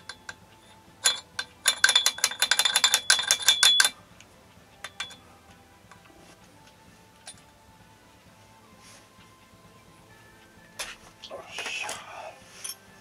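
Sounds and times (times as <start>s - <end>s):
pliers clicking on metal: 1.0s - 4.0s.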